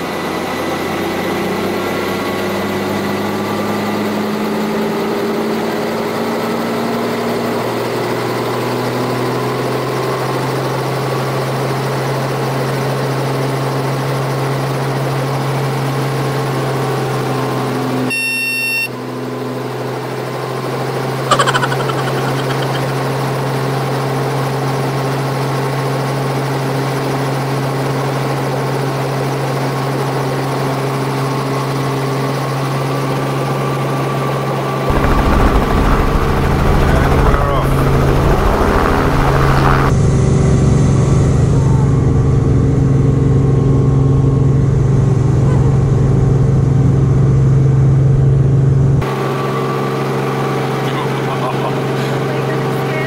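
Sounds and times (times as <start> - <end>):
helicopter engine and rotor hum: 21.3 - 40.7.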